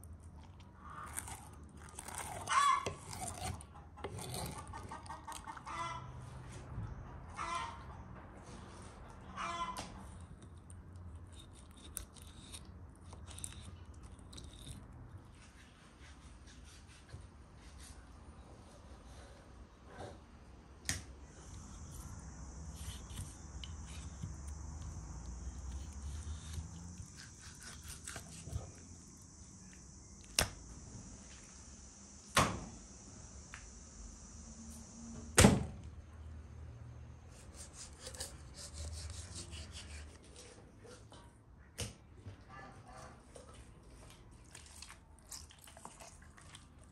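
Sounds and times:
knife cutting on wooden board: 2.0s - 4.7s, 25.8s - 28.7s, 37.4s - 40.4s
high insect drone: 21.3s - 35.4s.

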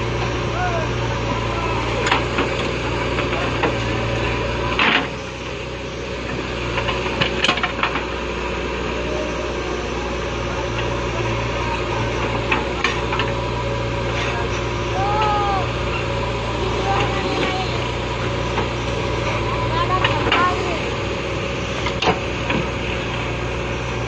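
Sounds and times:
diesel engine running: 0.0s - 24.0s
rush of noise: 7.3s - 23.6s.

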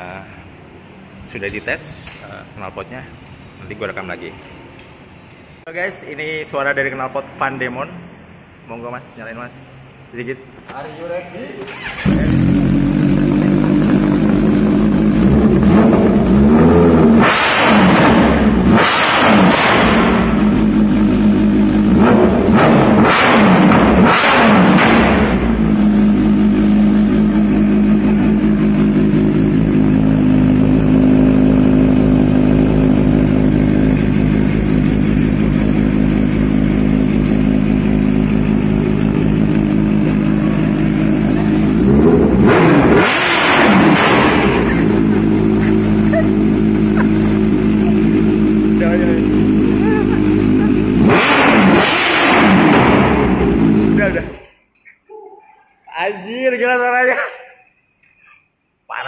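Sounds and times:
motorcycle engine revving and idling: 11.7s - 54.4s.

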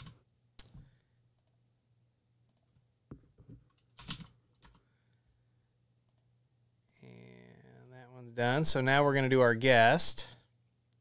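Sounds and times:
computer keyboard keystrokes: 3.6s - 4.8s.

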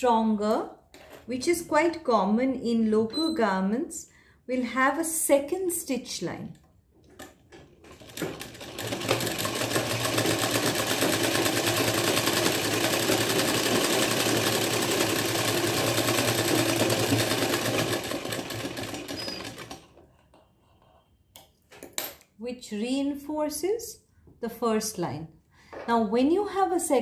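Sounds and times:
sewing machine clicks: 7.1s - 20.0s
sewing machine running: 7.8s - 20.0s.

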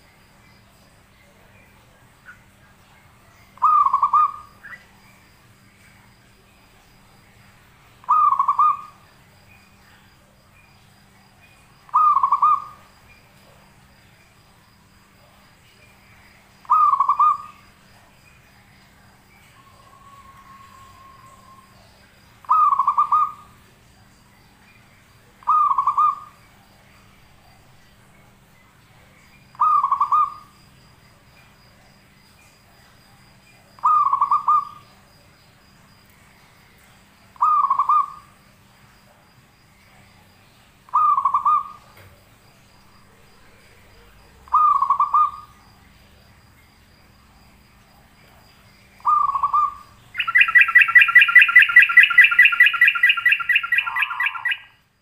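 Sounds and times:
bird rapid trilling: 49.0s - 54.7s.

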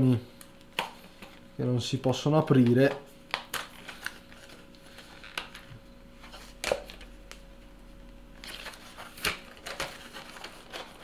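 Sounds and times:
plastic packaging cracking: 3.3s - 5.8s, 8.4s - 11.0s
packaging crinkling: 3.3s - 7.4s, 8.4s - 11.0s.

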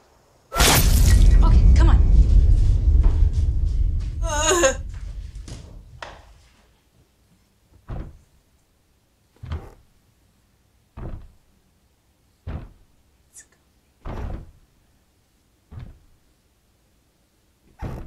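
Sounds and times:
heavy thuds on wooden door: 7.8s - 8.2s, 11.0s - 11.4s, 12.5s - 12.8s, 14.0s - 14.6s, 15.7s - 16.1s.

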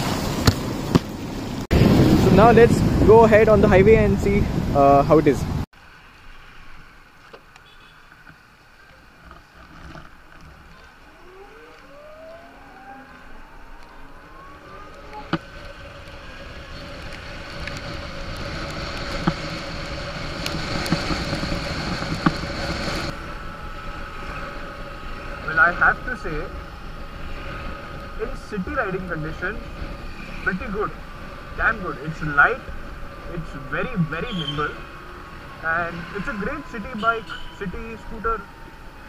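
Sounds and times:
tyre noise on wet road: 0.0s - 5.2s, 5.8s - 39.0s
wind noise: 0.0s - 5.7s, 9.2s - 39.0s
electric scooter motor whine: 10.3s - 25.4s.

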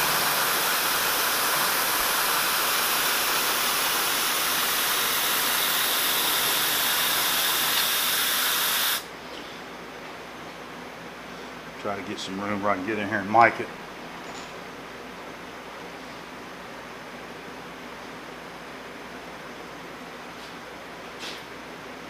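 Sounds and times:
mist sprayer hissing: 0.0s - 9.1s
machine hum: 0.0s - 14.4s.

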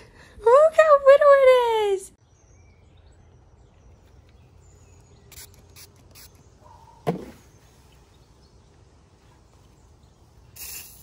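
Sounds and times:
spray bottle hisses: 5.3s - 6.4s, 10.5s - 11.0s.

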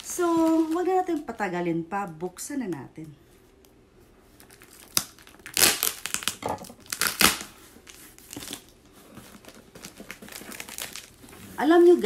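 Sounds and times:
packaging crinkling and tearing: 0.0s - 1.5s, 4.4s - 12.0s.

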